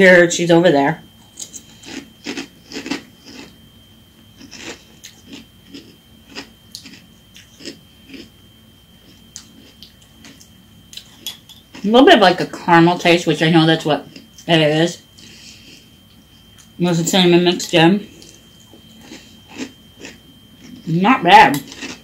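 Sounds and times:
person chewing crunchy cereal: 1.2 - 3.6, 4.2 - 8.4, 9.0 - 11.9, 17.6 - 20.9, 21.5 - 22.0.

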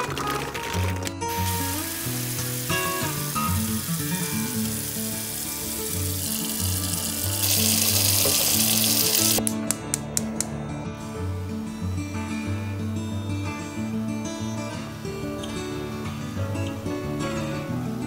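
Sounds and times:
background music: 0.0 - 18.0
tap water pouring into pot: 1.4 - 9.4.

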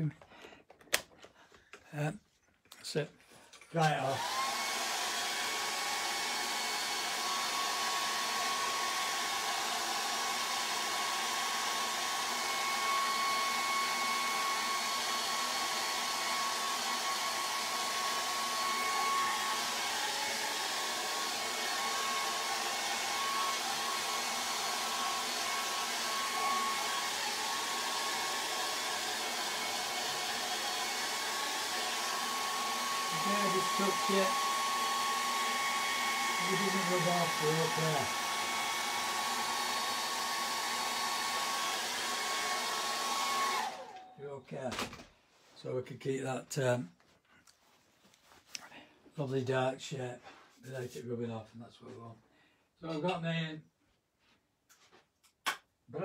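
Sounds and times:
hair dryer running: 3.8 - 44.3.

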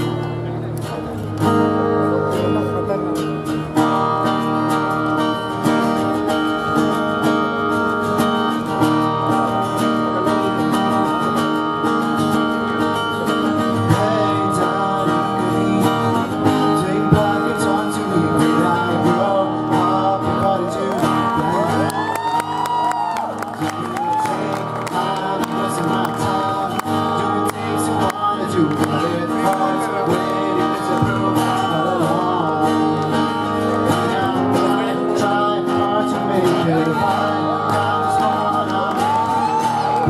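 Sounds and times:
acoustic guitars strumming: 0.0 - 40.0
person singing: 13.0 - 40.0.

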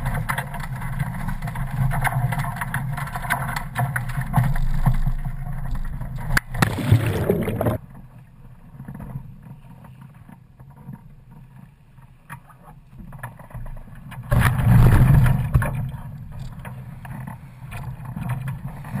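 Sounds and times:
water rushing past hulls: 6.4 - 7.9.

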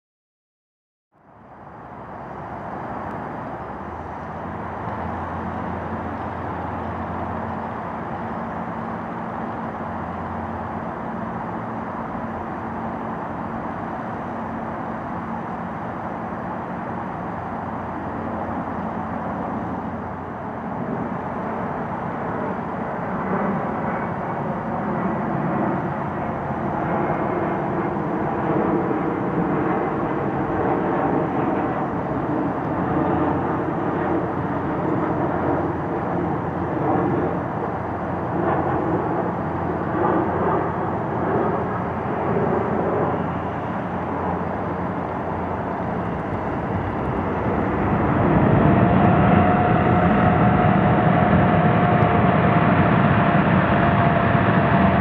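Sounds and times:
jet engine rumble: 1.1 - 55.0
steady jet whine: 1.2 - 55.0.

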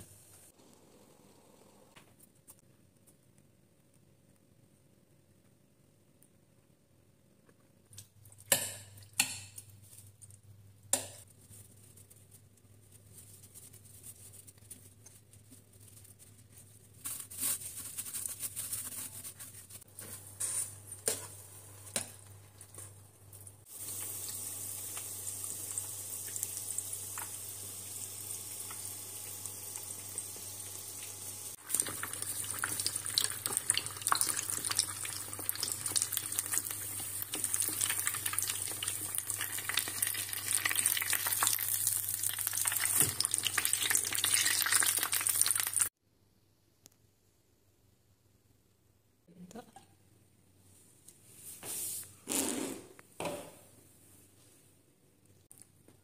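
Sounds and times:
food deep-frying in oil: 22.0 - 45.9.

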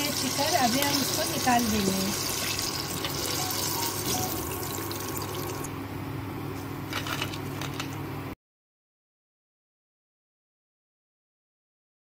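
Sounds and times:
chicken deep-frying in oil: 0.0 - 5.7.

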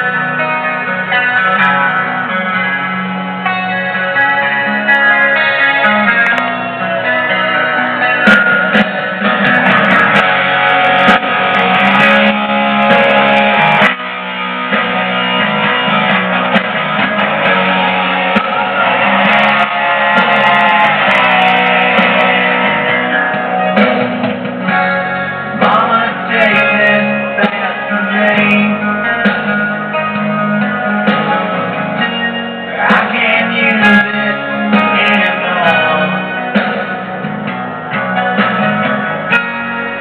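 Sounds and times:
guitar music with singing: 0.0 - 40.0.

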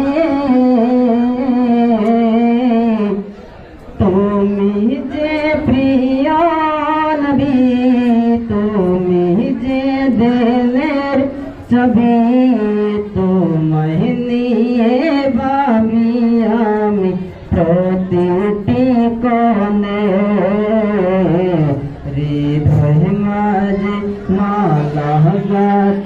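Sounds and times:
man singing unaccompanied: 0.0 - 3.4, 4.0 - 26.0.

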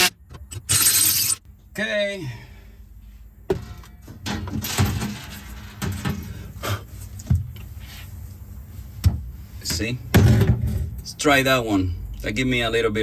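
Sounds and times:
sheet metal clunking and scraping: 3.5 - 6.5, 10.1 - 11.0.

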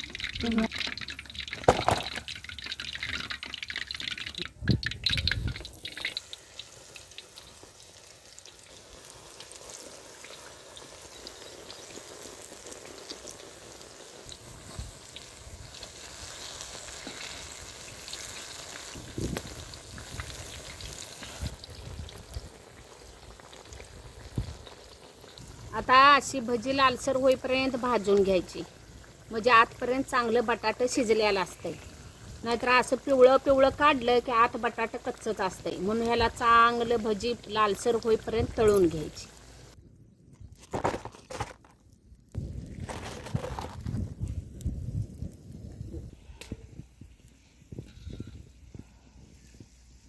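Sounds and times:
potato slices frying in oil: 0.0 - 39.8.

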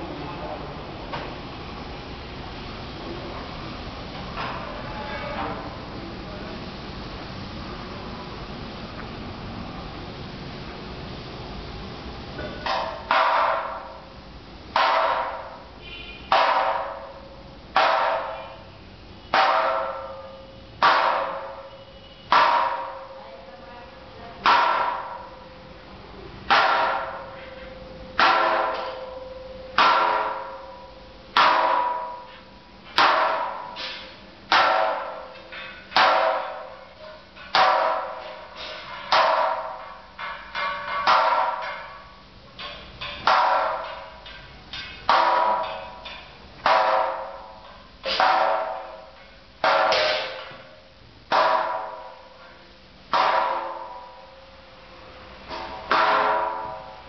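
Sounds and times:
steady hum: 0.0 - 57.0
hammer blows on metal: 14.7 - 23.2, 26.4 - 54.5.

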